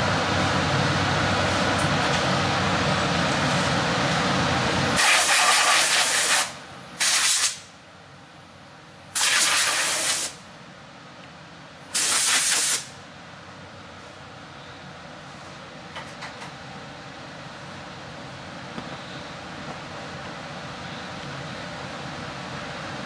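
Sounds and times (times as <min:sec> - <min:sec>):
steady running noise: 0:00.0 - 0:07.0
compressed air blowgun blasts: 0:05.0 - 0:07.7, 0:09.2 - 0:10.4, 0:11.9 - 0:13.0.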